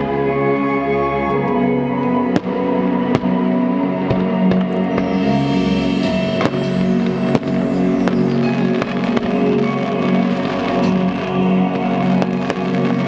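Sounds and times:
music track: 0.0 - 13.0
firework bangs: 4.0 - 13.0.

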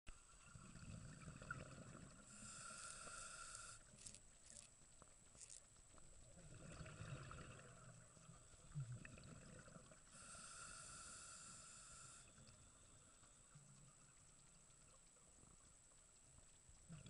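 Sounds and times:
exhaled bubbles rumbling: 0.4 - 2.3, 6.2 - 10.1
scuba regulator breathing underwater: 1.6 - 4.2, 10.1 - 13.2.

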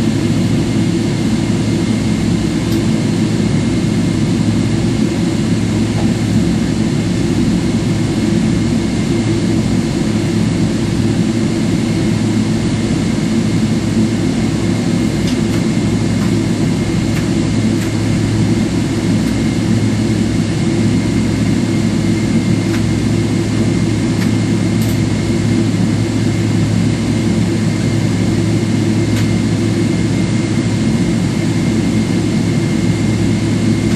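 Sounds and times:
airplane cabin drone: 0.0 - 33.9.

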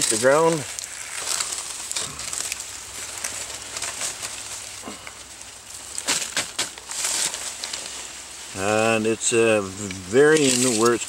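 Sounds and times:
metal spoon scraping soil: 9.6 - 11.0.

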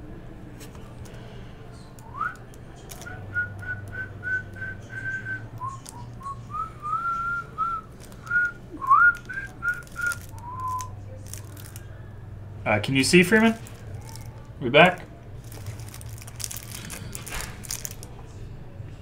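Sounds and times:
person whistling a tune: 2.1 - 2.4, 3.0 - 10.9
plastic packs crinkling: 2.2 - 12.0, 12.8 - 18.2.

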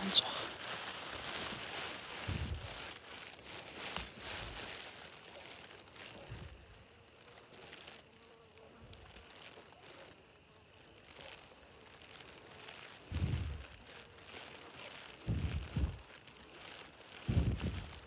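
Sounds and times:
insects chirping: 0.0 - 18.0
soft low thumps: 2.1 - 2.9, 13.1 - 13.8, 15.2 - 16.1, 17.2 - 18.0.

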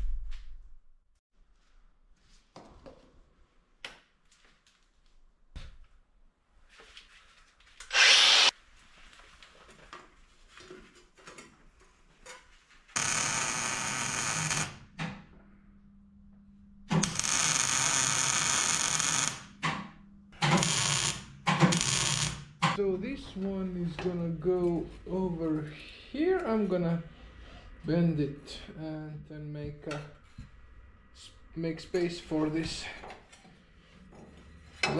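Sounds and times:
power tool running: 7.9 - 8.5.

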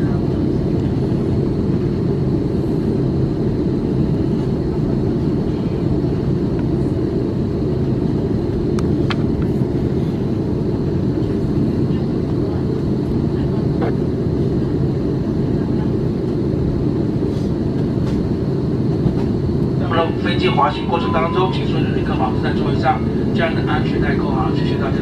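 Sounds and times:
airplane taxiing rumble: 0.0 - 25.0.

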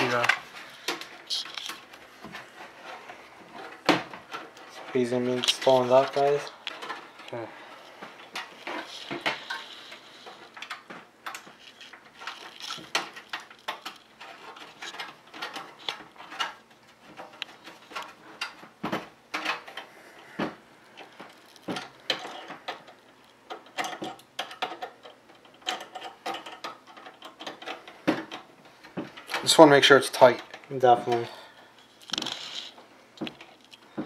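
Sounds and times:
screwdriver metallic clicks and scrapes: 0.0 - 3.0.

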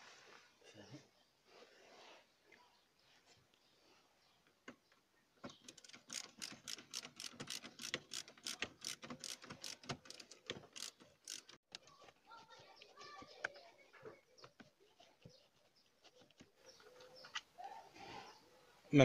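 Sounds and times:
ratcheting screwdriver clicking: 5.7 - 11.6.

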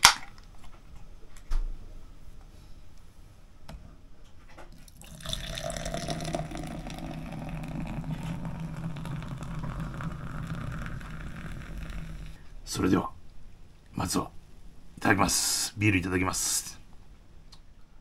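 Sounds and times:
beer pouring into glass: 4.8 - 12.4.

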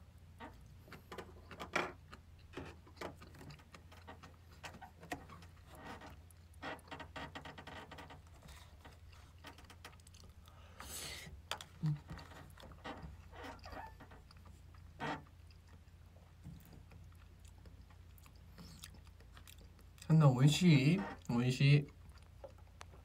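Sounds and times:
chewing noises: 8.3 - 20.2, 21.1 - 23.0.

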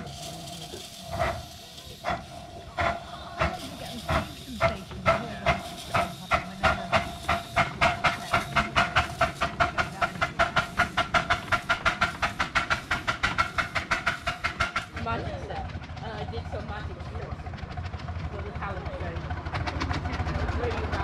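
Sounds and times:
steam locomotive chuffing: 0.0 - 21.0.

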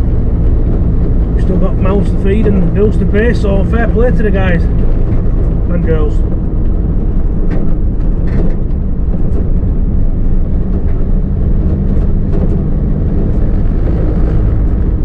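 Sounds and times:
truck engine droning in cab: 0.0 - 15.0.

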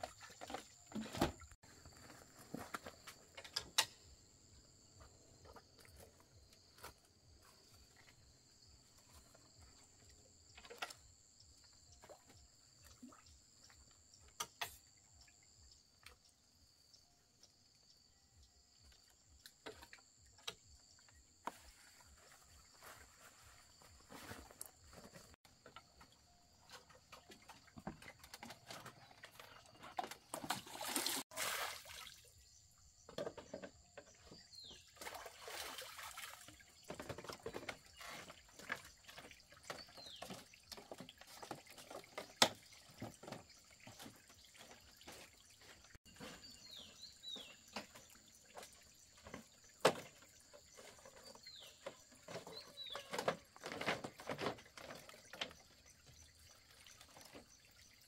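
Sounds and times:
water splashing and dripping: 26.0 - 32.5, 34.2 - 58.0.

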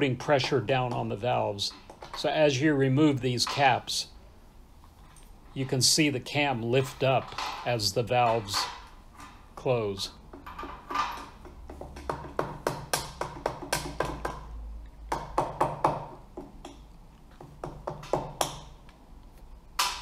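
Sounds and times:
rubber mallet tapping metal: 10.3 - 16.8.

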